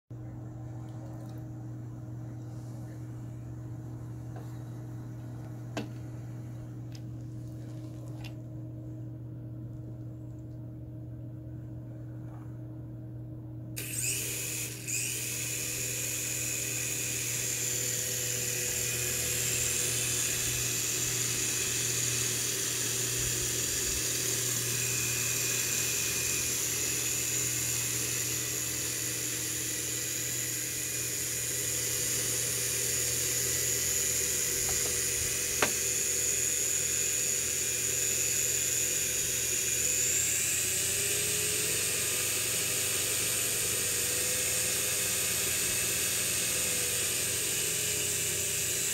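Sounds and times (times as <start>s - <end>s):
toy helicopter rotor motors whining: 13.8s - 48.9s.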